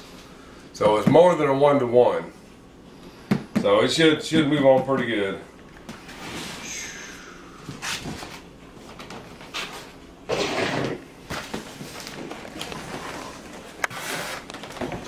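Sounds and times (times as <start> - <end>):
cardboard scraping and sliding: 11.9 - 15.0.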